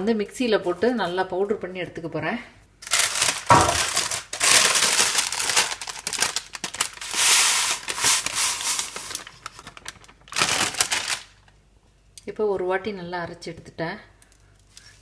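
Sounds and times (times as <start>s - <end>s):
baking paper crinkling: 2.8s - 11.6s
dried spice rattling into steel jar: 2.9s - 5.9s.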